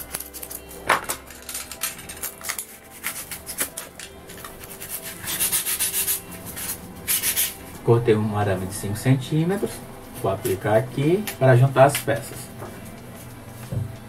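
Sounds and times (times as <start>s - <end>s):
utility knife cutting styrofoam: 2.8s - 7.6s
pencil marking: 4.4s - 7.6s.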